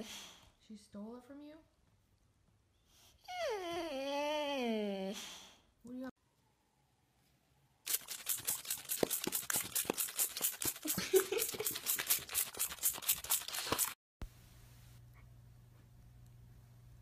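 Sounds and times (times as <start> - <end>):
dog chewing with crisp crunching: 7.9 - 14.0
faint low hum: 14.2 - 17.0.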